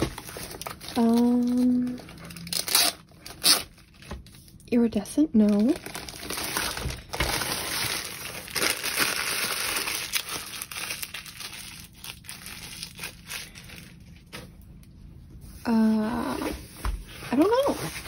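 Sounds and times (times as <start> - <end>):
packaging crinkling: 0.0 - 4.7, 5.4 - 14.5.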